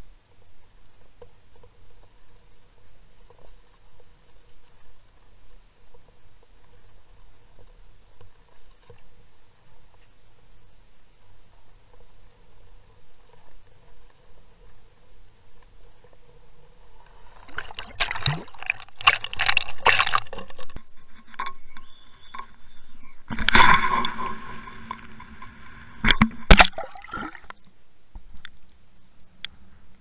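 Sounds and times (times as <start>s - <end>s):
water splashing and sloshing: 17.0s - 29.7s
faint underwater hush: 20.8s - 30.0s
sharp smacks on water: 25.9s - 27.6s.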